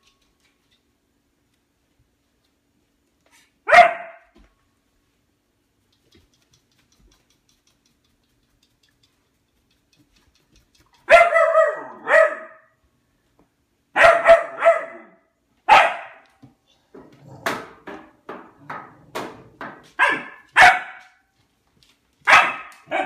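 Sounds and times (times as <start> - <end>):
dog barking: 3.6 - 4.3, 11.1 - 12.8, 14.0 - 16.3, 20.0 - 21.2, 22.2 - 23.0.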